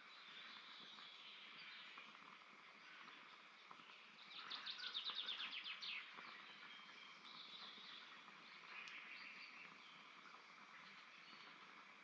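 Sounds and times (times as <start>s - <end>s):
faint click: 8.7s - 9.1s.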